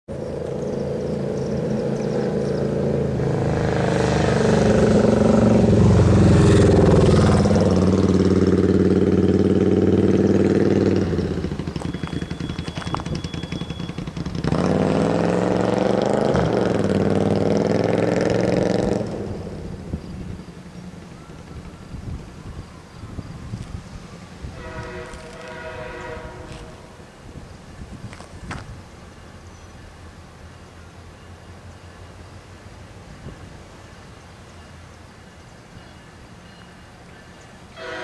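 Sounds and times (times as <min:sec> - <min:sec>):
engine revving: 0:00.1 - 0:20.4
faint steady high tone: 0:29.1 - 0:38.0.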